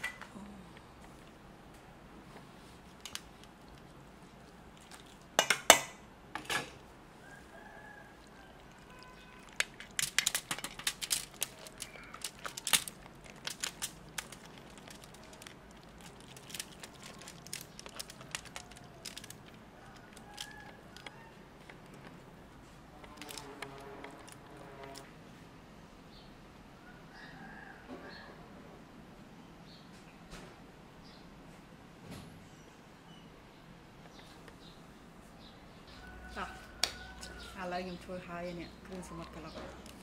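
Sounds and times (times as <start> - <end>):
aluminium foil crinkling: 2.5 - 5.7, 7.2 - 25.1, 37.1 - 40.0.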